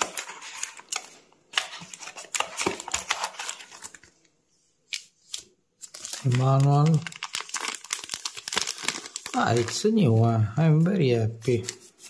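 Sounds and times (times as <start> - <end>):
packaging crinkling and rustling: 0.0 - 4.3, 5.8 - 10.2.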